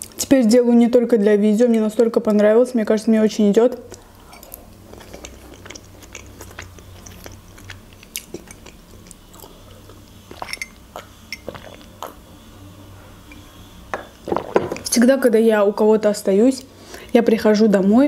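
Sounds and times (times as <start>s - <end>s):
person chewing food: 3.9s - 12.4s.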